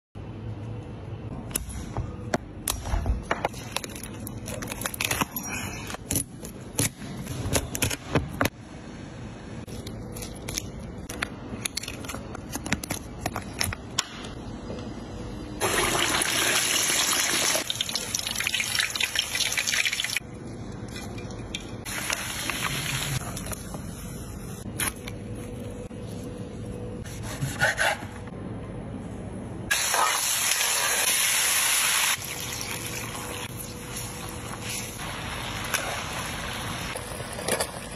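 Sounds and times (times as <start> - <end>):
lobster meat sizzling: 15.6 - 20.2.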